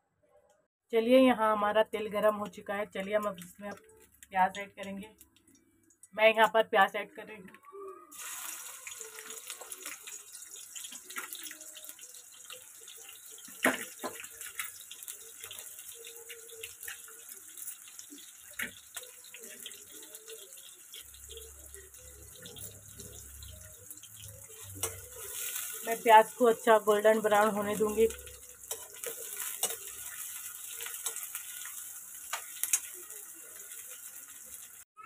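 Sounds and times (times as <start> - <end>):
onions sizzling in hot oil: 8.1 - 34.9.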